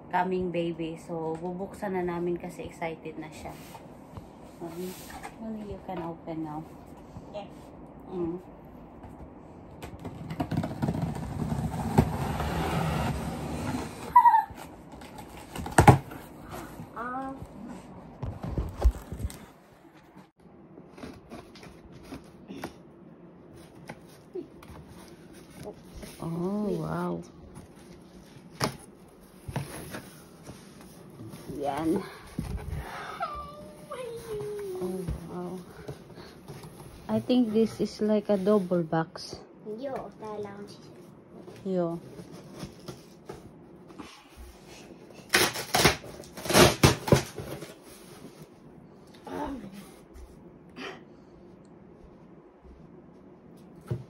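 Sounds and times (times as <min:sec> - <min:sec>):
cardboard scraping and rubbing: 0:10.0 - 0:16.8
packing tape being slit: 0:45.3 - 0:47.7.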